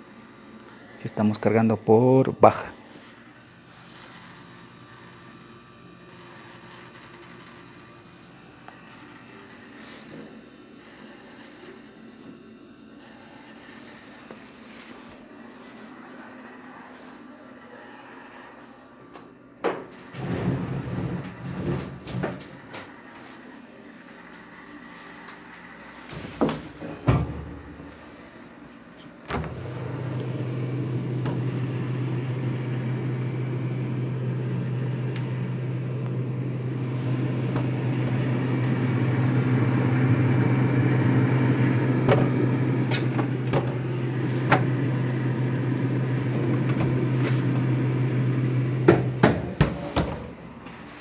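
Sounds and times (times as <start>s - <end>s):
refrigerator humming: 0.0s - 51.0s
refrigerator clicks and knocks: 48.9s - 50.2s.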